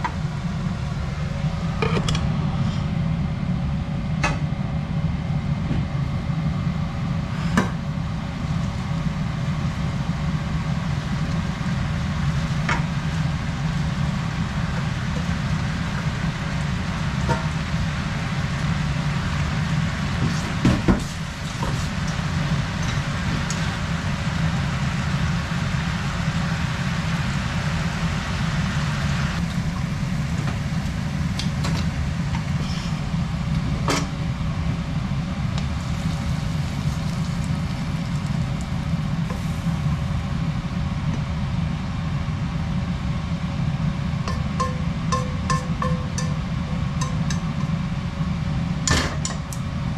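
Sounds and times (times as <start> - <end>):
low hum: 0.0 - 49.9
cabbage frying in pan: 35.6 - 39.9
utensils knocking on pan: 44.3 - 47.6.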